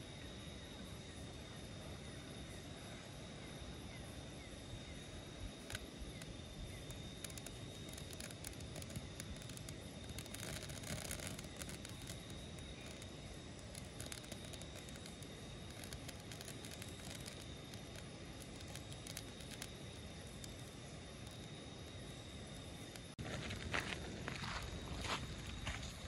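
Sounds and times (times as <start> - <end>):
light crackles and clicks: 5.5 - 23.2.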